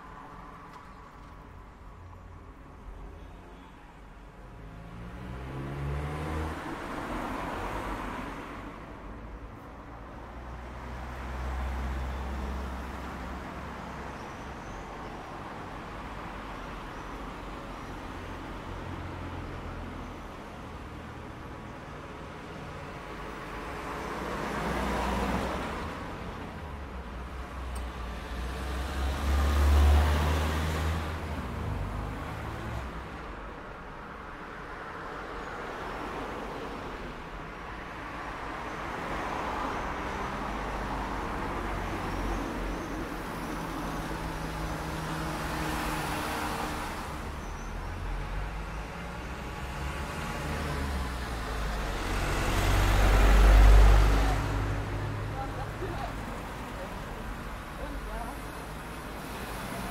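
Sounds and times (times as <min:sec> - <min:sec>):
traffic rumble: 0:00.0 - 0:59.9
cars driving past: 0:04.5 - 0:09.2, 0:09.8 - 0:59.9
heavy vehicle passing: 0:43.3 - 0:59.9.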